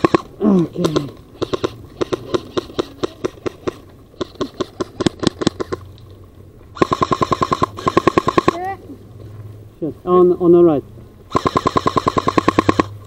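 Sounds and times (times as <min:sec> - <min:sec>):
airsoft gun single shots: 0:00.0 - 0:03.6, 0:06.8 - 0:08.6, 0:11.3 - 0:13.0
airsoft rifle full-auto burst: 0:00.0 - 0:05.8, 0:06.8 - 0:08.6, 0:11.3 - 0:13.0.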